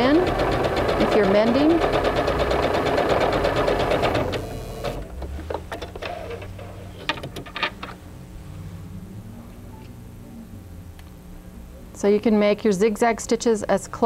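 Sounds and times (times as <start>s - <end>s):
sewing machine stitching: 0.0s - 5.1s.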